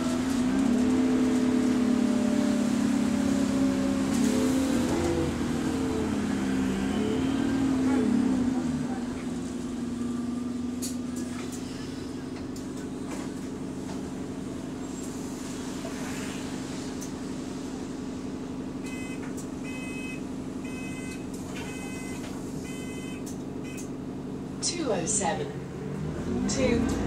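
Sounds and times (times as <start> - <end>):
bus engine and fan drone: 0.0 - 27.0
electronic door warning beeps: 18.8 - 23.9.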